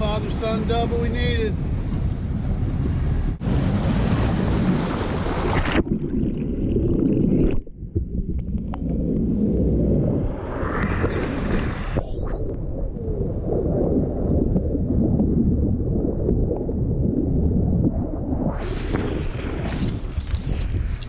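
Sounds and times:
wind buffeting microphone: 0:00.0 - 0:05.8, 0:07.6 - 0:21.0
muffled underwater rumble: 0:00.0 - 0:21.0
rushing water: 0:03.4 - 0:09.0
water splashing: 0:03.4 - 0:21.0.

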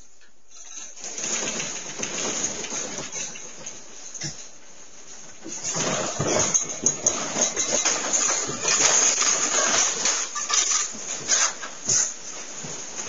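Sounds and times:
house rattling in earthquake: 0:00.5 - 0:13.0.

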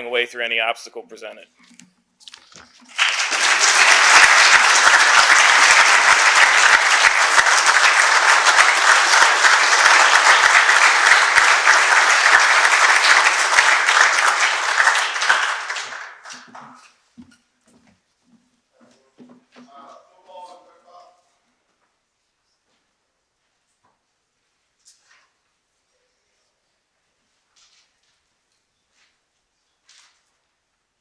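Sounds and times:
audience applauding loudly: 0:02.8 - 0:16.9.

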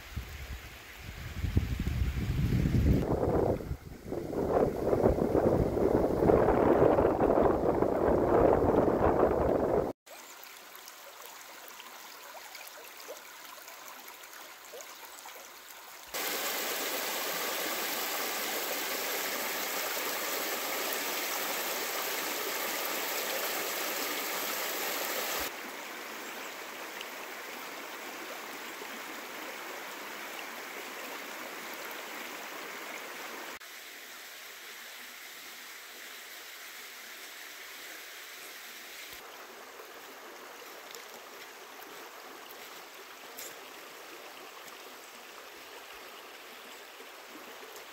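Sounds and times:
creek water rushing over rocks: 0:06.3 - 0:33.8, 0:37.2 - 0:47.9.

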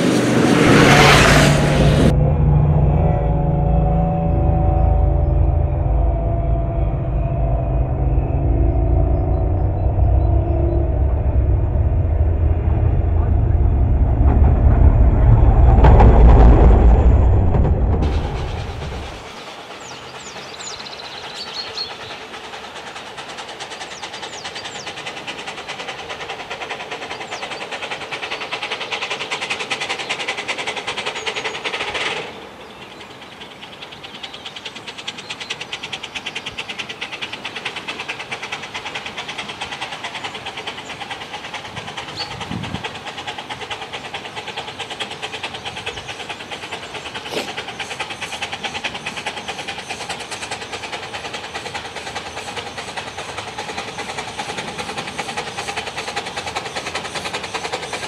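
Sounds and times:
steam locomotive exhaust beating: 0:00.0 - 0:58.0
steam hissing: 0:18.0 - 0:58.0.

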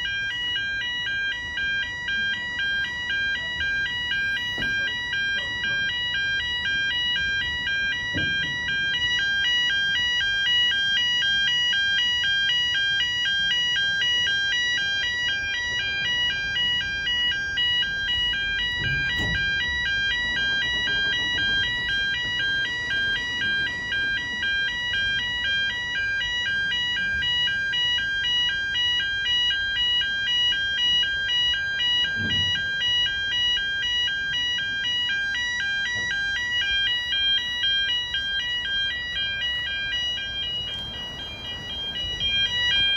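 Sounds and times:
warbling two-tone crossing alarm: 0:00.0 - 0:42.9
train wagons rumbling: 0:15.8 - 0:25.6, 0:35.8 - 0:42.9.

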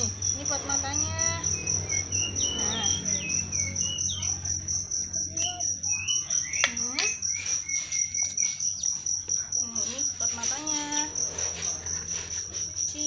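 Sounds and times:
cricket chirping: 0:00.0 - 0:13.0.

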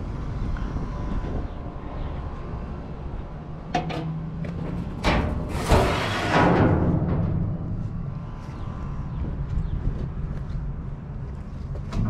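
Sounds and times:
loud metal clanks: 0:03.7 - 0:08.3
metal door scraping: 0:03.7 - 0:08.7.

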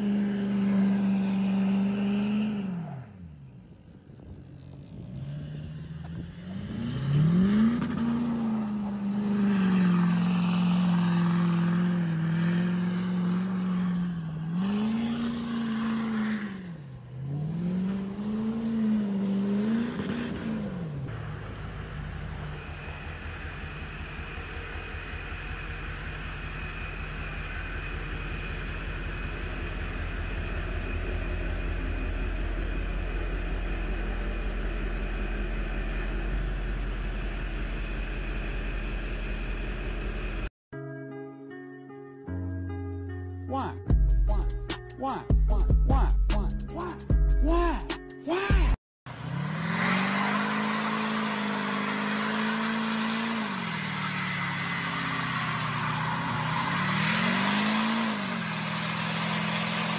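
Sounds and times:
diesel truck engine revving: 0:00.0 - 0:03.4, 0:04.2 - 0:40.5, 0:49.1 - 0:59.9
diesel pickup idling: 0:21.1 - 0:40.5.

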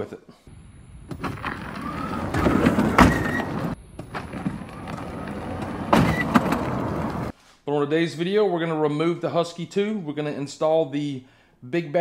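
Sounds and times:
golf cart driving on asphalt: 0:01.0 - 0:07.3.

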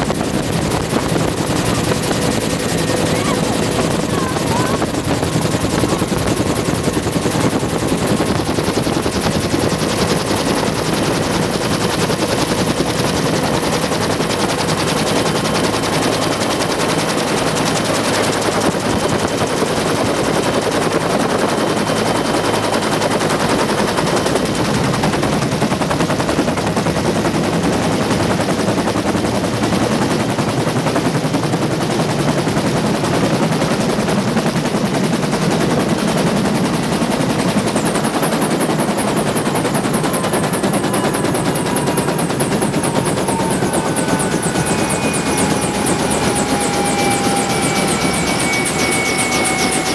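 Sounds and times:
helicopter rotor chopping: 0:00.0 - 0:49.9
turbine whine: 0:37.8 - 0:49.9.

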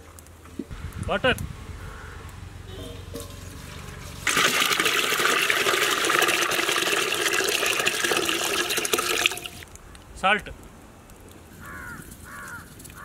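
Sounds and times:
water pouring into metal pot: 0:04.2 - 0:09.7.

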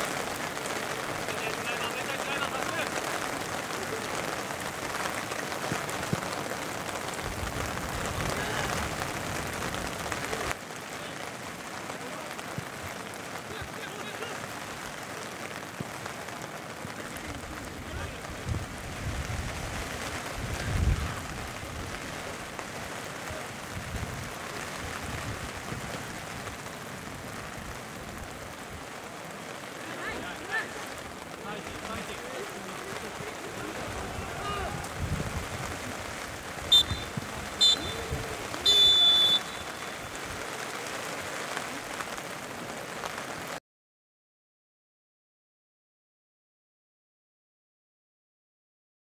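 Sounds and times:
rain falling: 0:00.0 - 0:43.6
faint players shouting: 0:08.1 - 0:09.0, 0:29.6 - 0:41.0.

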